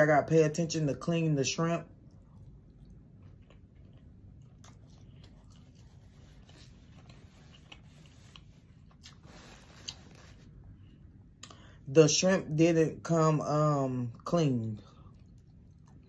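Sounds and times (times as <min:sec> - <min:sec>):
chewing: 0:01.9 - 0:11.6, 0:14.7 - 0:16.0.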